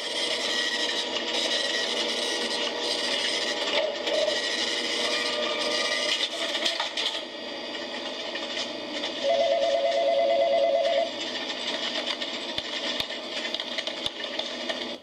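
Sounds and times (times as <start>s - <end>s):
busy workplace background sounds: 0.0s - 15.0s
electronic telephone trilling: 9.2s - 11.1s.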